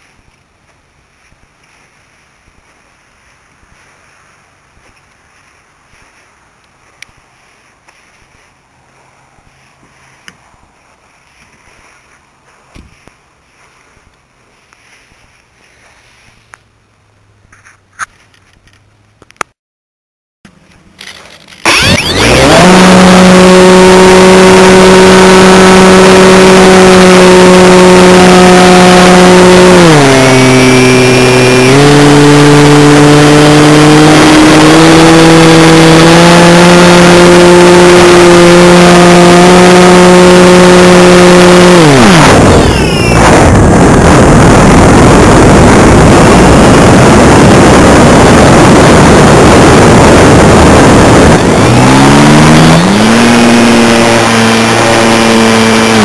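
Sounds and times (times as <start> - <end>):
model plane motor drone: 21.0 - 56.0
wind rushing over airframe: 42.4 - 52.7.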